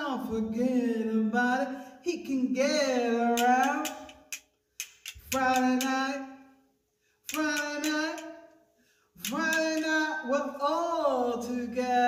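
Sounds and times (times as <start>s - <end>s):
castanet clicks: 3.4s - 6.0s, 7.3s - 8.3s.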